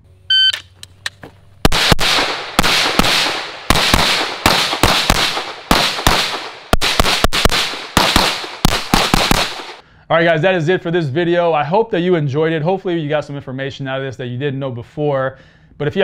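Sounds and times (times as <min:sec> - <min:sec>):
rapid pistol shots: 0:01.6 - 0:09.8.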